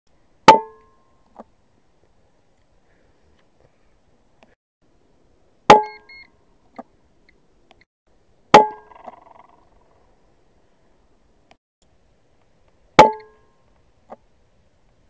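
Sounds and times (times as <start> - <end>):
faint rustle: 1.2 - 5.0.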